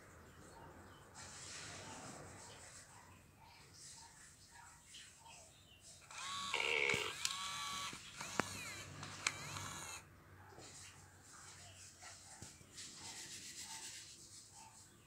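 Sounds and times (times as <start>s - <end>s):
sharp clicks: 6.0s - 10.0s
toy electronic animal calls: 6.1s - 10.0s.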